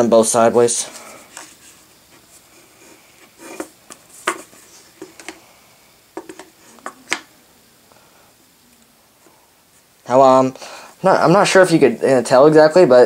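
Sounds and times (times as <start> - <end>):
phones tapping on tabletop: 6.2 - 7.3.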